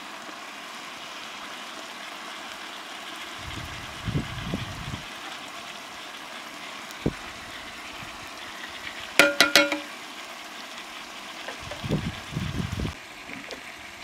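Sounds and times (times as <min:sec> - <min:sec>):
steady hiss: 0:00.0 - 0:14.0
cup clinking on metal pot: 0:09.2 - 0:09.9.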